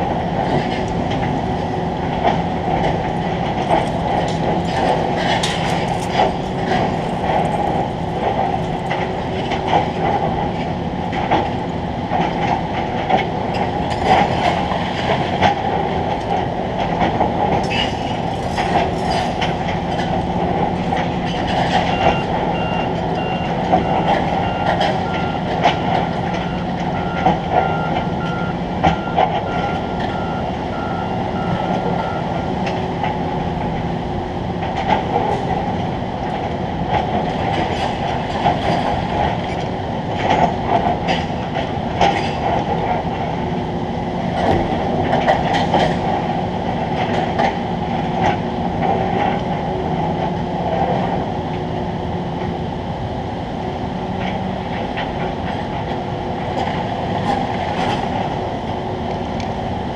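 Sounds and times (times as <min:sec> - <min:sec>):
machinery humming: 0:00.0 - 0:59.9
clanks and rattles: 0:00.4 - 0:33.9, 0:34.6 - 0:43.3, 0:44.2 - 0:51.3
electronic warning beeps: 0:21.8 - 0:32.4.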